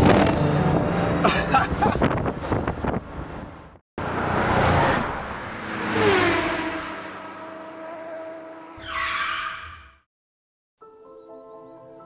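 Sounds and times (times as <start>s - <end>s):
fast vehicle rushing past: 4.0s - 8.7s.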